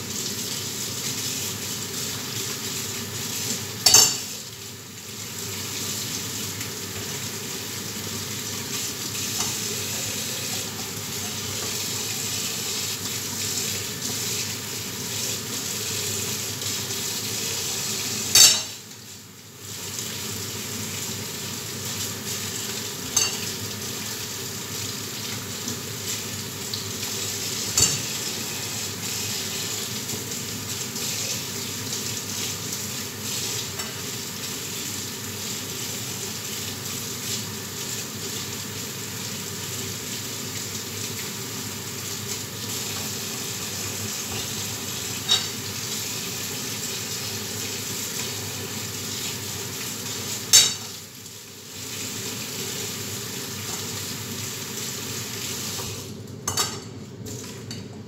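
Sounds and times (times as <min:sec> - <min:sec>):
food sizzling in a pan: 0:00.0 - 0:56.8
utensil clinking on pan: 0:18.4 - 0:18.7.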